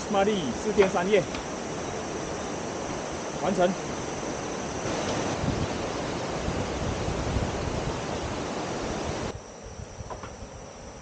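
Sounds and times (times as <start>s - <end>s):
river rapids rushing: 1.0s - 9.3s
wind buffeting microphone: 4.4s - 10.7s.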